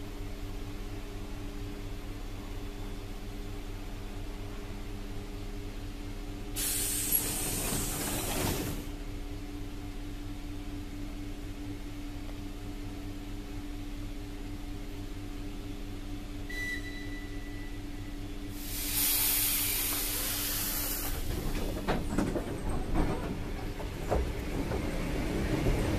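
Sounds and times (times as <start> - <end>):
electric train hum: 0.0 - 25.9
compressed air hiss: 6.6 - 8.3, 18.5 - 21.3
brief high tone: 16.5 - 18.0.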